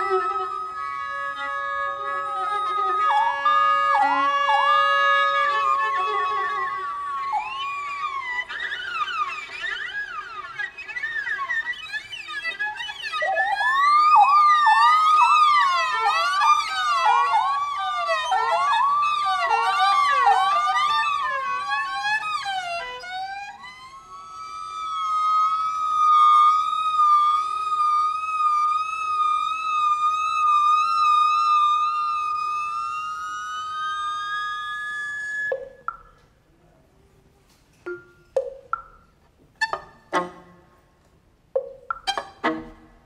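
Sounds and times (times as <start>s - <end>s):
viola wailing glissandi: 0.0s - 36.2s, 37.9s - 40.8s, 41.6s - 43.0s
vibraphone mallet strike: 37.9s - 39.0s, 41.6s - 42.4s.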